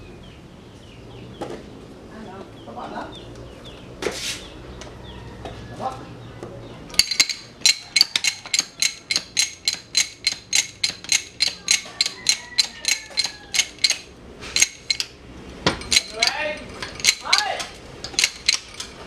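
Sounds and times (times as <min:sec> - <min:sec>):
ringing metallic clicks: 0:06.9 - 0:19.0.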